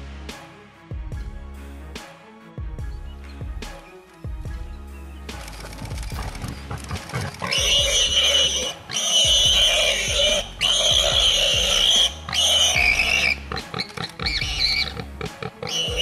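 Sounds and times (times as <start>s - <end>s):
background music: 0.0s - 16.0s
warthog squealing: 5.6s - 16.0s.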